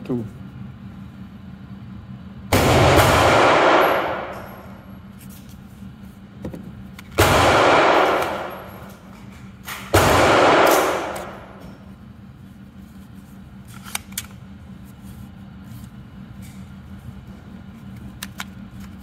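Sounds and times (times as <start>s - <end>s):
gunshots echoing indoors: 2.5s - 4.9s, 7.2s - 11.8s.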